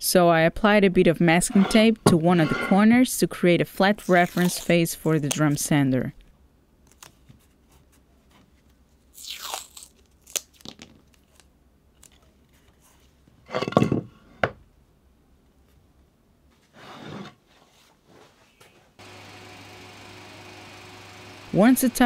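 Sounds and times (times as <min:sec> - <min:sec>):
masking tape crinkling and tearing: 0:04.0 - 0:05.6, 0:09.1 - 0:12.3.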